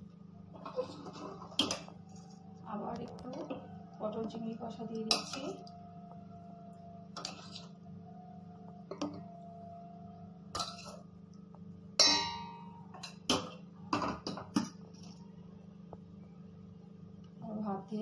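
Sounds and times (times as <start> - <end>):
steady low hum: 0.0 - 18.0
metal spoon clinking on pot: 5.0 - 5.6, 12.0 - 14.7.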